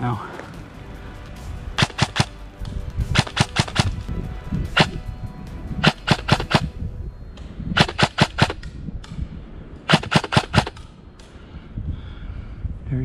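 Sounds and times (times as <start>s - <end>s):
airsoft guns firing: 1.8s - 2.4s, 3.2s - 4.1s, 5.8s - 6.7s, 7.8s - 8.6s, 9.9s - 11.0s.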